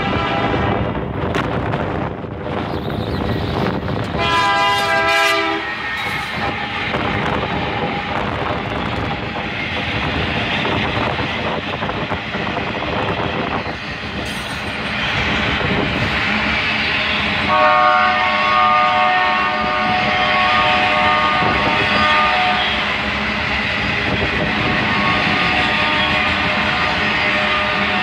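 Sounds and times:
distant locomotive horn chord: 0:00.0 - 0:00.7, 0:04.2 - 0:08.3, 0:17.5 - 0:23.0, 0:24.5 - 0:28.0
freight train rumbling past: 0:00.0 - 0:28.0
train wheels clattering on rail joints: 0:01.1 - 0:16.6.

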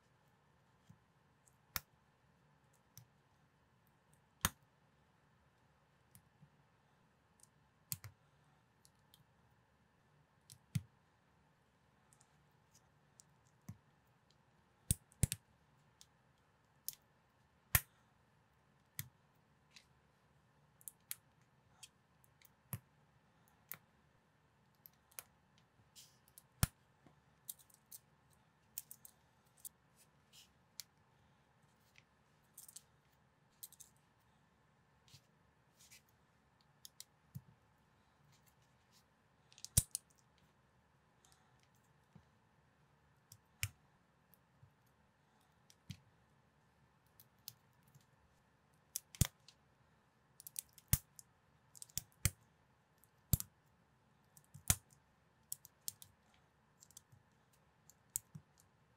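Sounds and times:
faint steady hum: 0:00.0 - 0:58.9.

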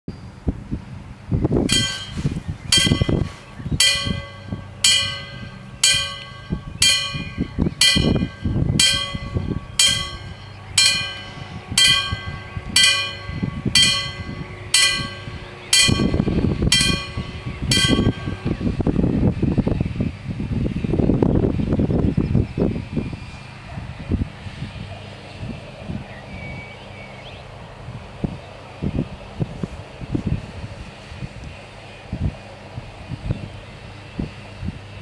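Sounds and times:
low rumbling noise: 0:00.1 - 0:35.0
level crossing warning bells: 0:01.7 - 0:19.0.

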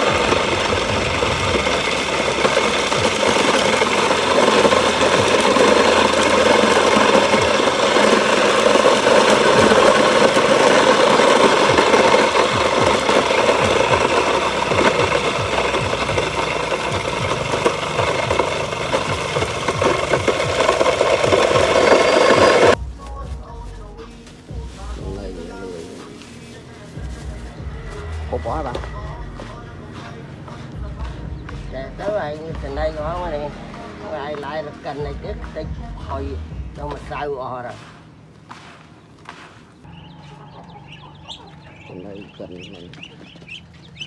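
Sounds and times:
electric grain mill grinding: 0:00.0 - 0:22.8, 0:26.9 - 0:36.2.

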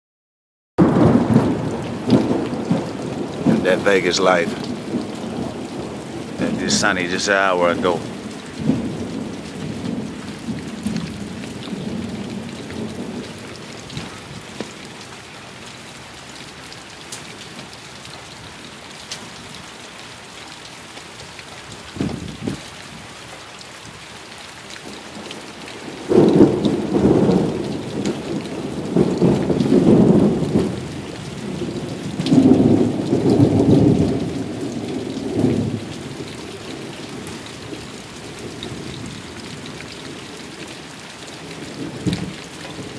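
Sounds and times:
thunder rumbling: 0:00.8 - 0:15.1, 0:21.9 - 0:22.7, 0:25.8 - 0:36.2
steady rain falling: 0:00.8 - 0:42.9.

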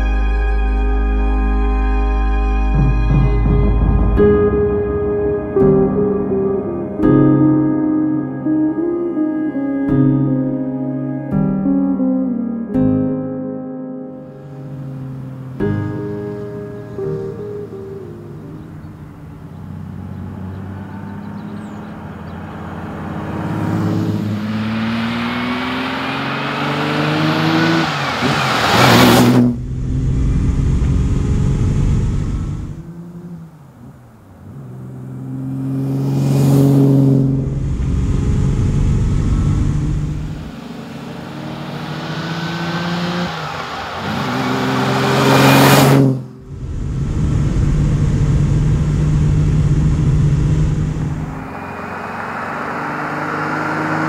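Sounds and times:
low rumbling road noise: 0:00.0 - 0:12.5, 0:14.1 - 0:54.0
car engine accelerating hard: 0:14.3 - 0:54.0.

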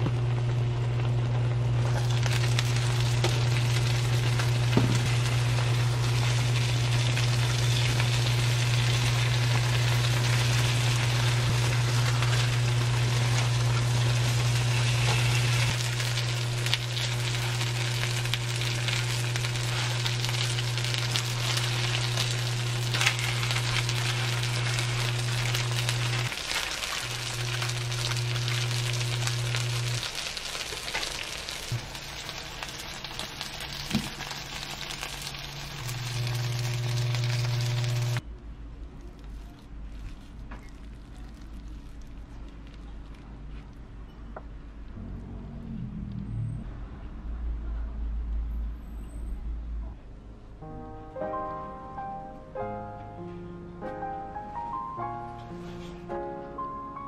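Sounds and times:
fish sizzling in pans: 0:01.8 - 0:38.2
loud steady low hum: 0:43.3 - 0:53.8.

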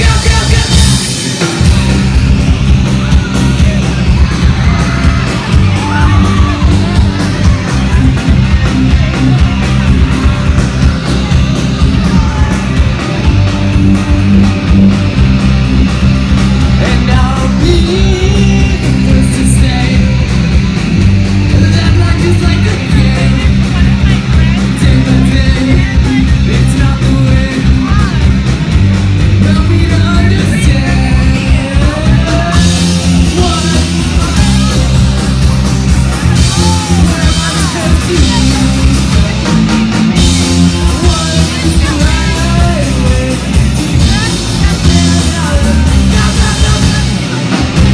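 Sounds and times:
lead vocal singing: 0:00.0 - 0:02.0, 0:16.4 - 0:20.6, 0:29.4 - 0:47.9
live rock band playing: 0:00.0 - 0:47.9.

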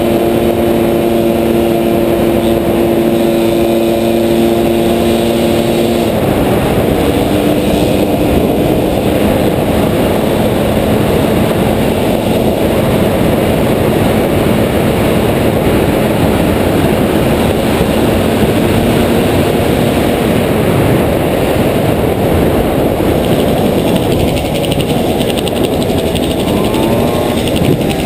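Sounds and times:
wind buffeting microphone: 0:00.0 - 0:28.0
fine fast ticking: 0:23.0 - 0:28.0.

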